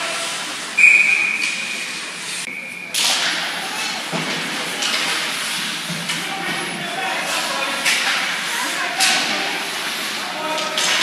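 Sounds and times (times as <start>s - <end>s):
ice rink noise: 0.0s - 11.0s
referee's whistle blast: 0.8s - 1.6s
sticks and puck clattering: 3.0s - 11.0s.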